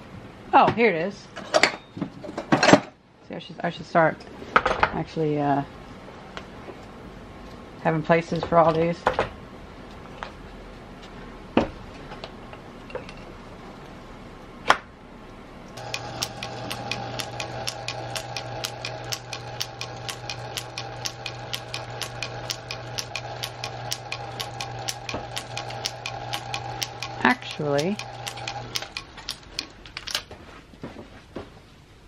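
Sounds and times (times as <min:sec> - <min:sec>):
metal lathe humming and ticking: 0:15.8 - 0:29.7
sharp metallic clicks: 0:15.8 - 0:30.2.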